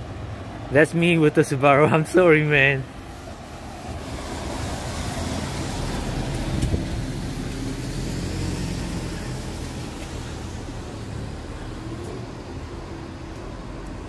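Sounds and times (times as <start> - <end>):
street traffic: 0.0 - 14.0
car engine hum: 3.4 - 14.0.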